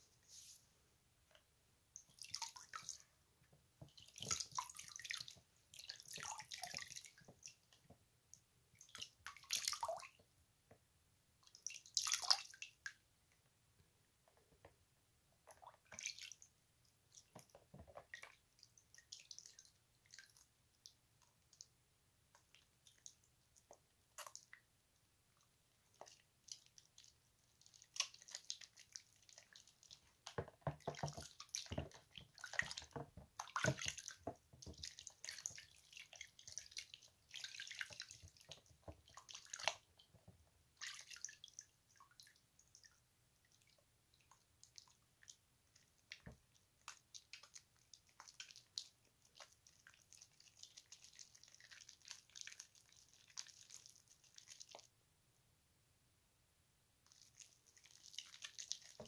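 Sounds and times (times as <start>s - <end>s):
soap bars rubbing wet squishing: 25.4s - 54.9s, 57.0s - 59.0s.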